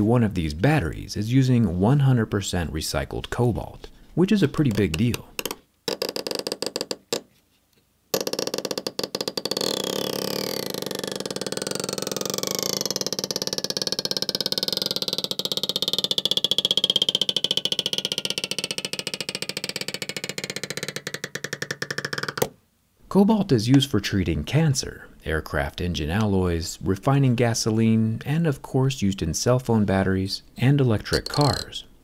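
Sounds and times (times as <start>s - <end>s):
adhesive strip crackling creak: 5.0s - 7.3s, 8.2s - 22.5s.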